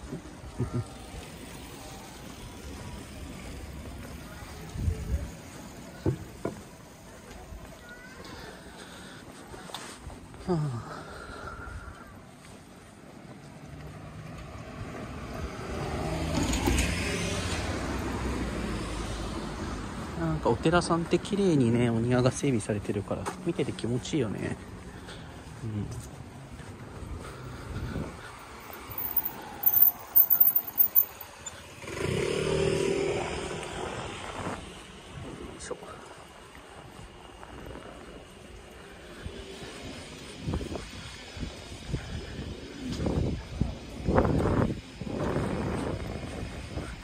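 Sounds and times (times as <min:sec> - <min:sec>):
motor scooter passing: 0:13.8 - 0:20.1, 0:31.2 - 0:35.4.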